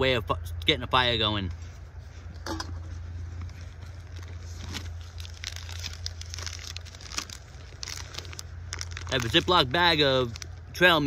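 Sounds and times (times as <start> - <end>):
steady low hum: 0.0 - 11.0
small clicks and crackles: 3.4 - 10.6
plastic bag crinkling: 3.5 - 11.0.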